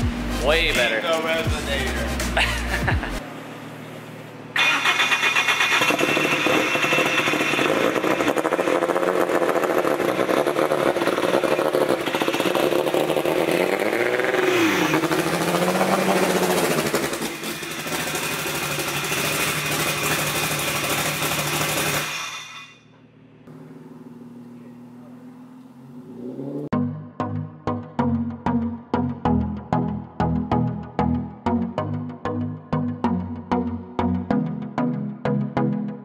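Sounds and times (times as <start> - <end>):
race car engine passing: 8.4 - 18.1, 23.2 - 26.7.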